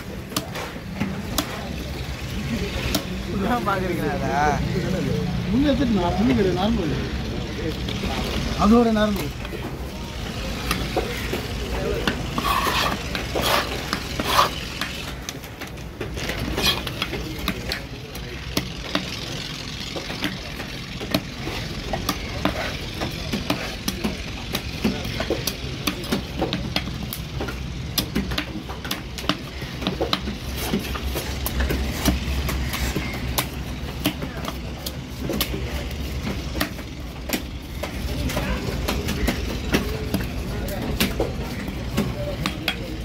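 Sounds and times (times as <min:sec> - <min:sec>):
knife scraping fish scales: 0:12.3 - 0:14.6, 0:16.5 - 0:17.0.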